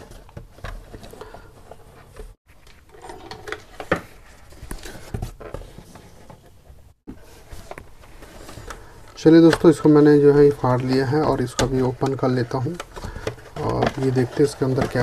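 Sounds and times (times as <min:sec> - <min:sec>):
cardboard and tape scraping: 0:10.4 - 0:15.0.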